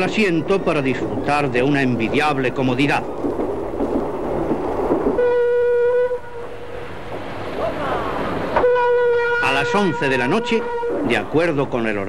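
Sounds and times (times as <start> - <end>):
train running rumble: 0.0 - 12.0
train horn: 5.2 - 6.7, 8.5 - 11.3.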